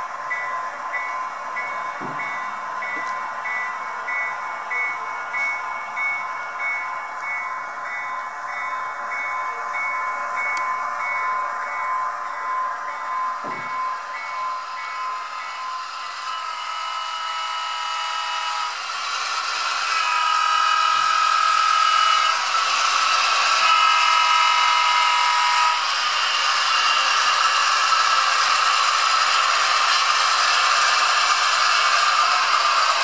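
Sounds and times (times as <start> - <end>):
high steady tone: 0.0 - 18.8
model locomotive engine running: 0.0 - 33.0
bell ringing: 0.3 - 16.4.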